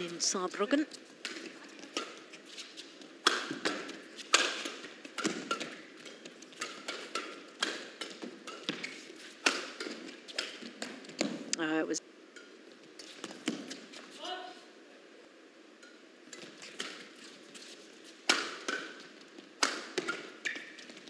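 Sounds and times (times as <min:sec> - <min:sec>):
rackets striking shuttlecock: 0:03.2 - 0:11.4, 0:18.3 - 0:21.0.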